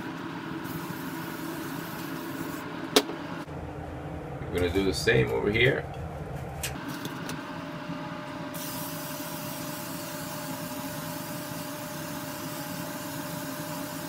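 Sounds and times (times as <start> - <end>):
aerosol can spraying hiss: 0.7 - 2.6, 8.6 - 14.0.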